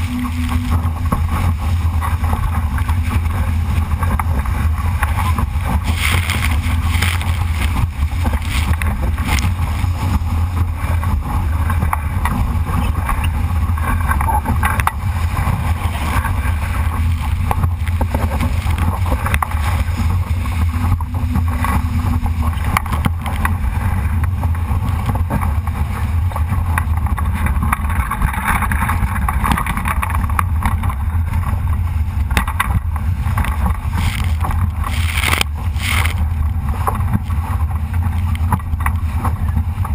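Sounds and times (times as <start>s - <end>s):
rushing wind and water: 0.0s - 39.9s
wind buffeting microphone: 0.0s - 39.9s.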